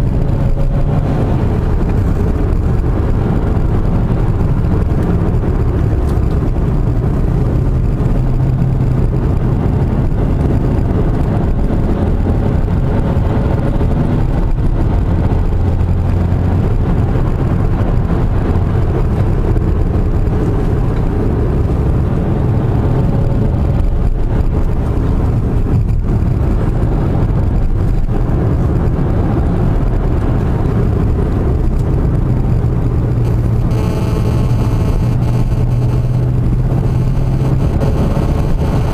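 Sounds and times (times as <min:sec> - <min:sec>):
car engine and tyre drone: 0:00.0 - 0:38.9.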